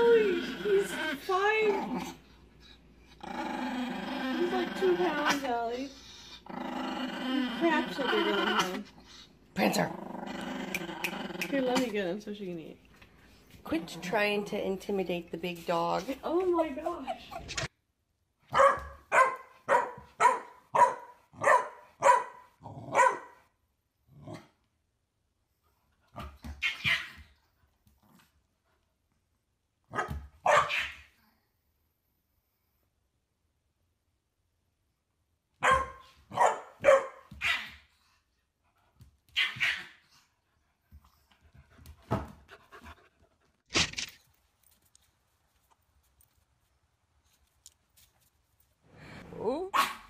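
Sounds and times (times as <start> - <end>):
puppy yapping: 18.5 - 22.4, 26.6 - 27.2, 30.0 - 31.1, 35.6 - 37.8, 39.3 - 40.0
dog barking: 18.5 - 23.4, 29.9 - 31.1, 35.6 - 37.8.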